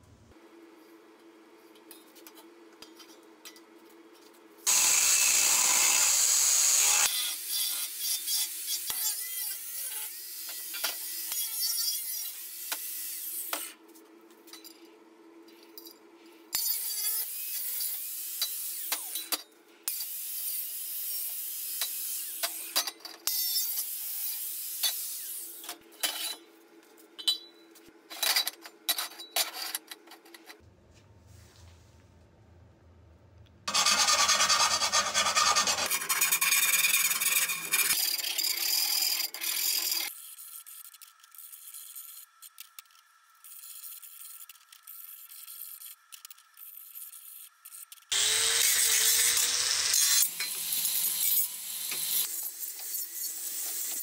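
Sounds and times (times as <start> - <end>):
angle grinder cutting steel: 4.7 - 13.5, 33.7 - 40.2, 48.1 - 54.0.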